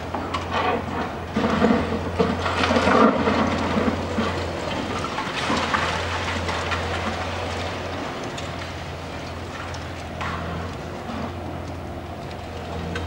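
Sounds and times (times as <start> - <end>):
falling debris rattling: 0.0 - 11.4
concrete cracking: 0.0 - 11.7
rubble crashing down: 0.2 - 8.8.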